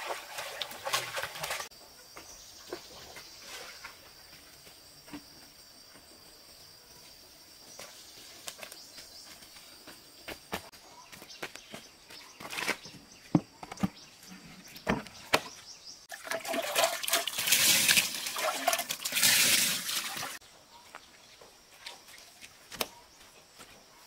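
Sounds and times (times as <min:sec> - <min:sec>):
water splashing onto fish: 0:16.1 - 0:20.4.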